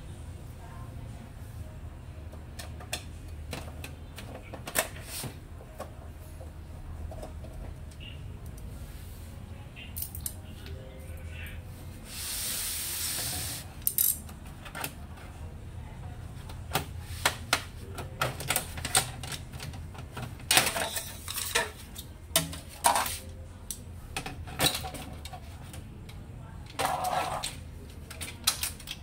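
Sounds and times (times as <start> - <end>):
steady hiss: 12.0 - 13.7.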